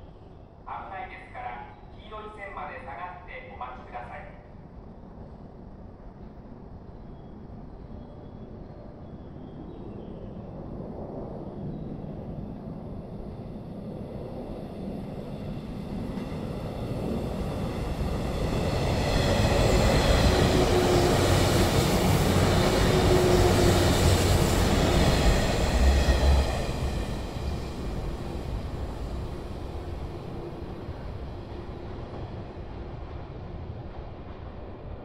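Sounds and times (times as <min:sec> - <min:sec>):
train passing rumble: 0:00.0 - 0:35.0.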